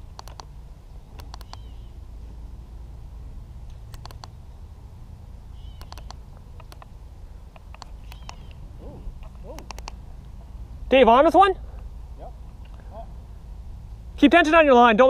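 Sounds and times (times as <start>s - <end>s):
sharp clicks: 0.0s - 0.5s, 1.1s - 1.7s, 3.7s - 4.4s, 5.7s - 6.9s, 7.5s - 8.6s, 9.2s - 10.4s
low steady rumble: 0.0s - 15.0s
bird chirps: 1.0s - 2.0s, 5.5s - 6.2s, 7.9s - 9.0s.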